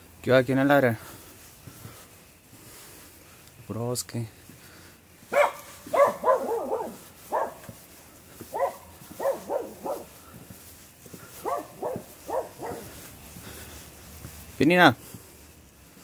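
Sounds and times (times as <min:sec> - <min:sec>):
small dog barking: 0:05.3 - 0:07.8, 0:08.4 - 0:10.2, 0:11.3 - 0:13.0.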